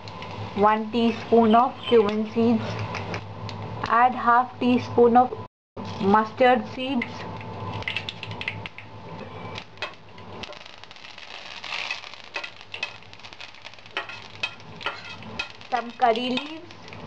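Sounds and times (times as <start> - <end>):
seeds spluttering in hot oil: 9.5 - 17.0
leaves hissing in hot oil: 10.4 - 17.0.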